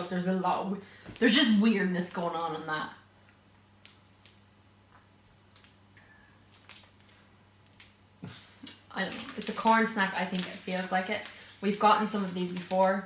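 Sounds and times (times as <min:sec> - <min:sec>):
low steady hum: 0:00.0 - 0:13.0
plastic wrapper crackling: 0:03.8 - 0:04.5, 0:05.3 - 0:08.0, 0:08.6 - 0:13.0.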